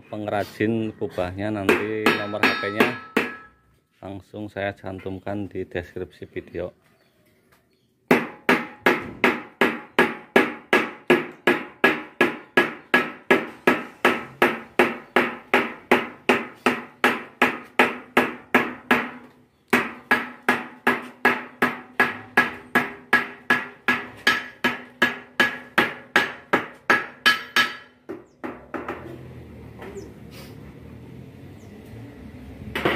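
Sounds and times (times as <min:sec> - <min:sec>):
hammer tapping chisel on metal: 0:01.7 - 0:03.6, 0:08.1 - 0:29.0.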